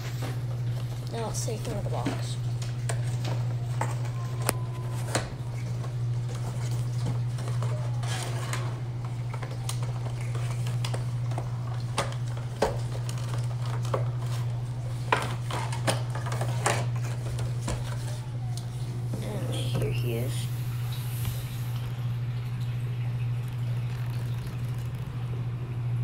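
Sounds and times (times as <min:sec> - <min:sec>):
steady low hum: 0:00.0 - 0:26.0
plastic crinkling and scraping: 0:02.0 - 0:22.1.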